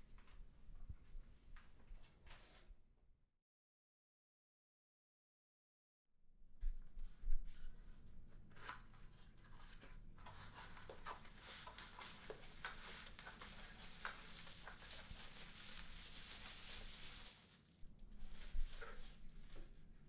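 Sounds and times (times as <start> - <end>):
bubble wrap crinkling: 9.8 - 19.9.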